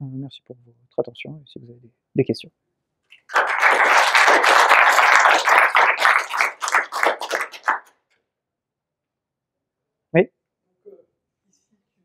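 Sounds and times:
audience applauding: 0:03.2 - 0:07.9.

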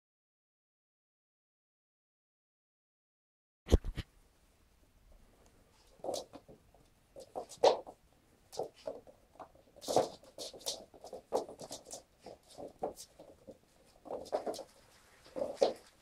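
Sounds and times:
kittens' paws pattering on wooden floor: 0:05.8 - 0:16.0.

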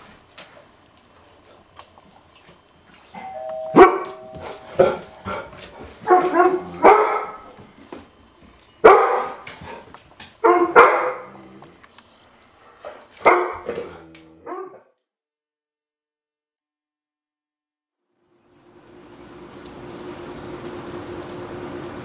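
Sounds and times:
dog barking: 0:06.0 - 0:07.5, 0:08.8 - 0:09.4, 0:10.4 - 0:11.3, 0:13.2 - 0:13.7, 0:14.4 - 0:14.9.

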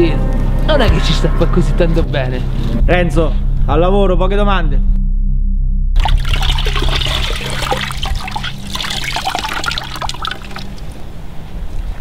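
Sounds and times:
water splashing into a bucket: 0:06.0 - 0:11.0.

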